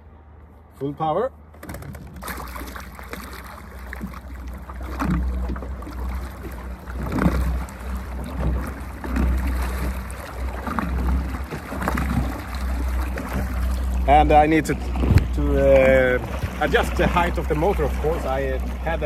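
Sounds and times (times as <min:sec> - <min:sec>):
propeller churning water: 0:01.4 - 0:19.0
electric trolling motor running: 0:02.8 - 0:19.0.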